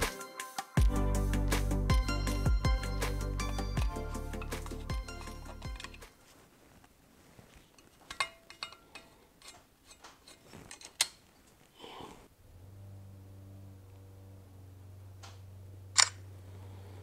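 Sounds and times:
screwdriver clicking on metal: 4.4 - 6.1, 8.1 - 11.2
steady low hum: 12.3 - 17.0.

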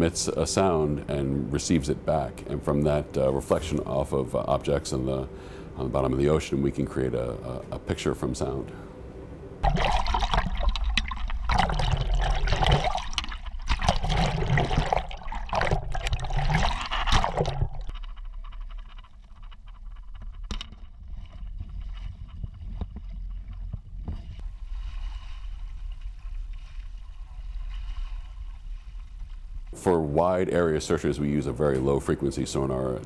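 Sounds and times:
water lapping: 9.6 - 18.8
low rumble: 9.6 - 31.8.

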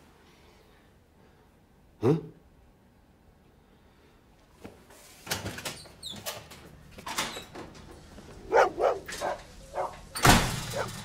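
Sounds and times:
dog barking: 8.4 - 11.0.

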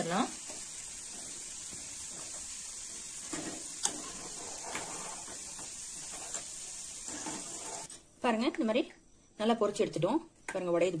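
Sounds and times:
stems sizzling in hot oil: 0.0 - 8.0.

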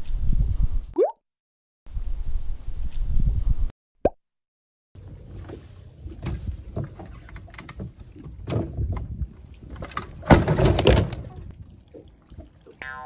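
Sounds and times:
wind rumble on microphone: 0.0 - 1.0, 1.9 - 3.7, 5.0 - 12.6
knocks and bumps on boat deck: 6.1 - 11.5.

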